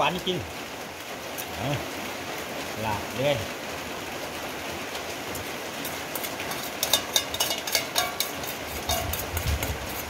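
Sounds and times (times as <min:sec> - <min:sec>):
steady rain hiss: 0:00.0 - 0:10.0
steel bowls knocking and scraping: 0:05.8 - 0:10.0.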